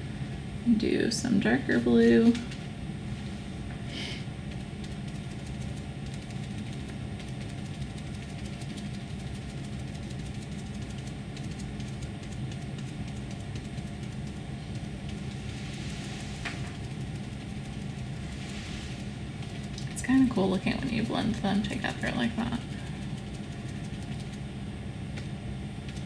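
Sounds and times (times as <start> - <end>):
low room hum: 0.0 - 26.0
sponge dabbing on paper: 4.6 - 24.4.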